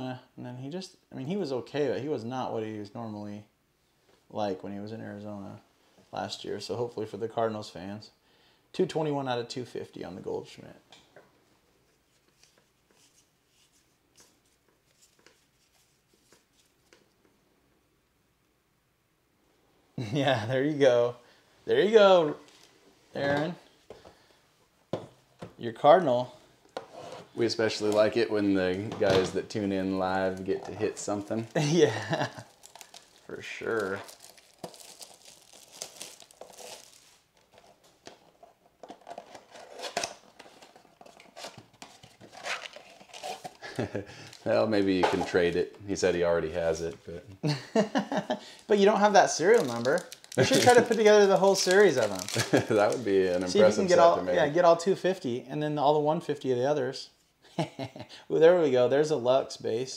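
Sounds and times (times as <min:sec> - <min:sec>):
cardboard crinkling and rustling: 0:28.8 - 0:45.5, 0:49.2 - 0:54.2.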